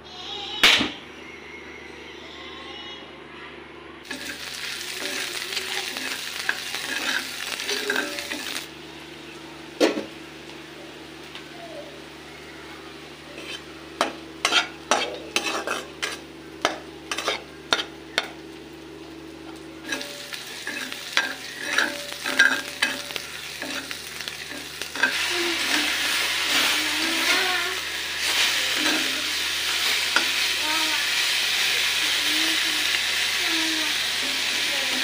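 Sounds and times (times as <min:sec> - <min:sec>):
oil sizzling: 0:04.0 - 0:09.2, 0:13.0 - 0:35.0
spatula scraping a wok: 0:04.1 - 0:08.7, 0:13.3 - 0:18.4, 0:19.8 - 0:31.4.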